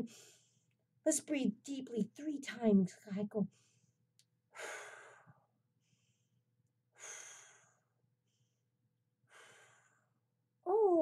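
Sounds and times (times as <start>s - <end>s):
woman breathing deeply: 3.5s - 8.6s, 9.2s - 10.3s.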